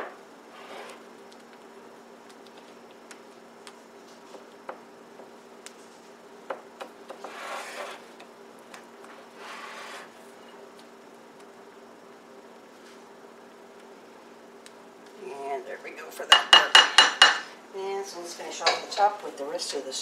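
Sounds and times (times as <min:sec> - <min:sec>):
faint steady hum: 0:00.0 - 0:20.0
spatula scraping glass dish: 0:07.2 - 0:08.0, 0:09.4 - 0:10.1
spatula tapping glass dish: 0:16.3 - 0:17.4.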